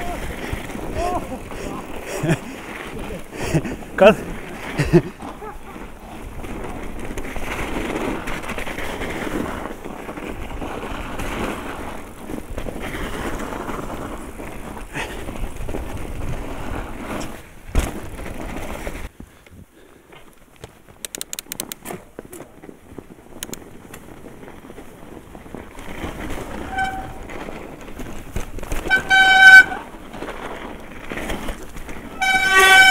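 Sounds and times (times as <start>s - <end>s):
bike tyres running over snow: 0.0s - 32.9s
quick run of sharp clicks: 20.6s - 22.0s, 23.4s - 24.0s.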